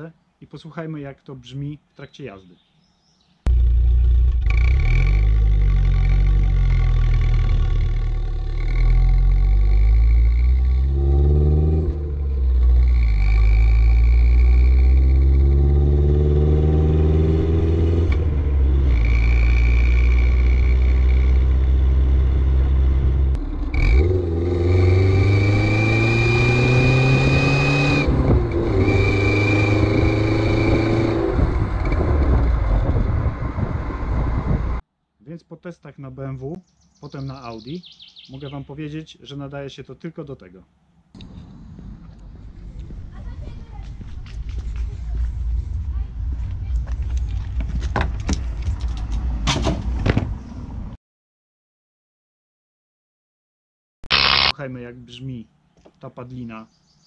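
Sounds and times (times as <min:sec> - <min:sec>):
car engine accelerating: 0:03.5 - 0:34.8.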